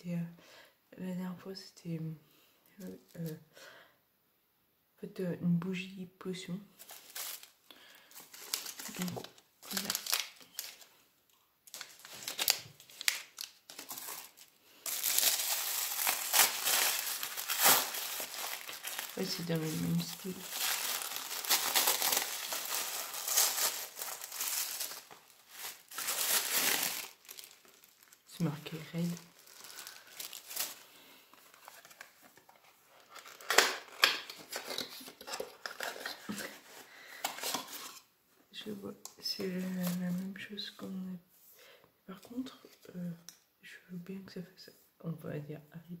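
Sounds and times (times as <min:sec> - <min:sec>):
packaging crinkling: 0:06.8 - 0:11.0, 0:11.6 - 0:38.0.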